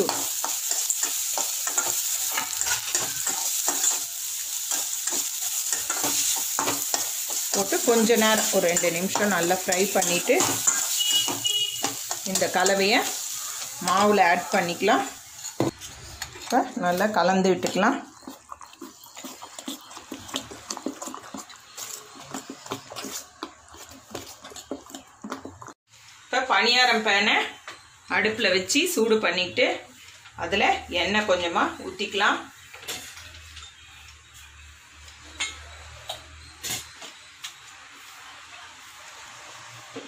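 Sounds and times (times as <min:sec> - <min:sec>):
spoon scraping a metal pan: 0:00.0 - 0:25.1
oil sizzling: 0:00.0 - 0:27.2
batter mixed by hand in steel bowl: 0:15.5 - 0:25.7.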